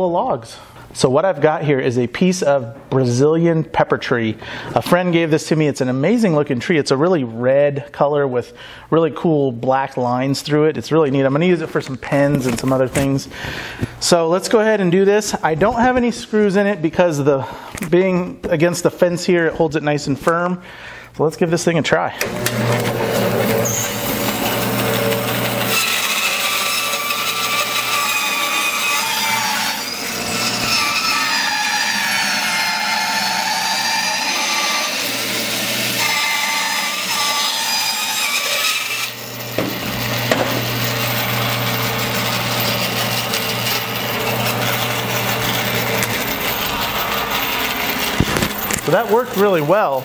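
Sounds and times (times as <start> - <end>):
bandsaw cutting wood with wavering whine: 22.2 - 50.0
bandsaw running: 22.2 - 50.0.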